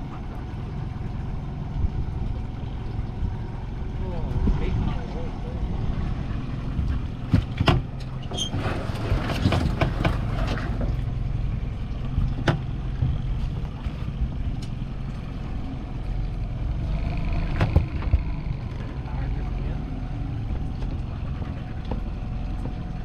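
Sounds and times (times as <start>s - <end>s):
outboard motor running: 0.0s - 23.0s
knocks and clicks on boat: 6.8s - 11.1s, 11.9s - 15.4s, 16.9s - 19.1s, 20.3s - 23.0s.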